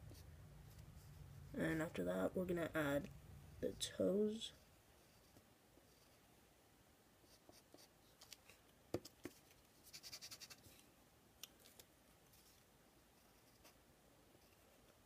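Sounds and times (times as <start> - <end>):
pencil scratching on paper: 9.2 - 10.6.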